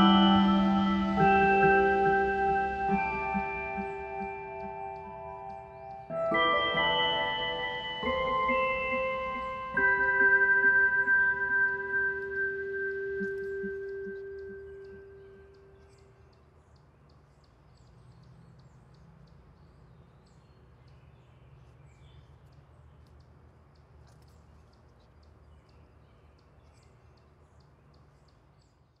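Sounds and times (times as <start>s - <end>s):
held ringing tone: 0.0s - 15.8s
high bird chirps: 0.0s - 29.0s.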